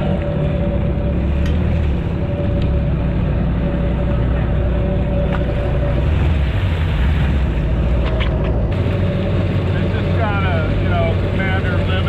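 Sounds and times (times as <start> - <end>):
jet ski engine running: 0.0 - 12.0
second jet ski running: 0.0 - 12.0.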